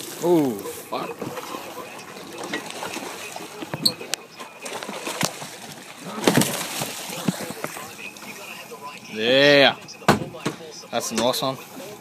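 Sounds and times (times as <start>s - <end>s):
fish splashing in water: 0.8s - 9.0s.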